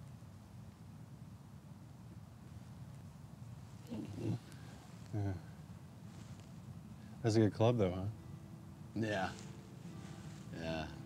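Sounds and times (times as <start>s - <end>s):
low background rumble: 0.0s - 11.0s
man's short wordless vocal sound: 5.1s - 5.5s.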